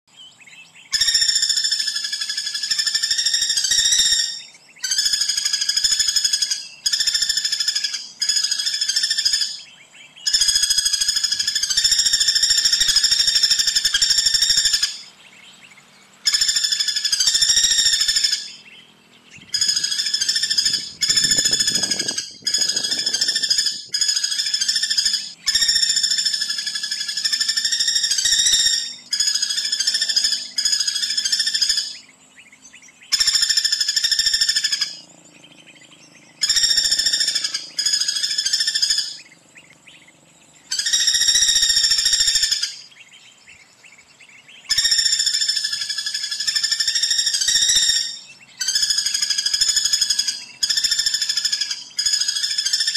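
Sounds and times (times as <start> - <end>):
woodpecker rattling trills: 0.9 - 15.5, 16.2 - 43.0, 44.1 - 52.9.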